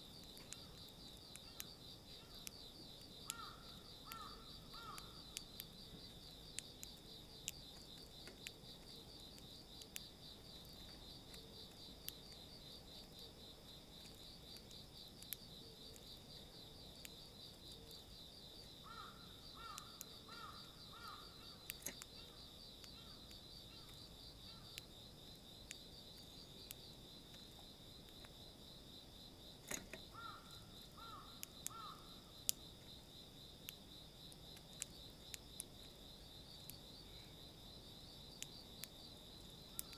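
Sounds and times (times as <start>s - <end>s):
beaks pecking seed in plastic tray: 0.0s - 39.9s
insects trilling: 0.0s - 39.9s
distant bird call: 3.2s - 5.4s, 18.8s - 24.8s, 30.1s - 32.1s.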